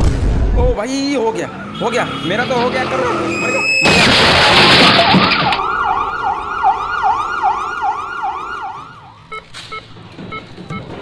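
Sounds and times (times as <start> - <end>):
ambulance siren yelping: 1.2 - 9.5.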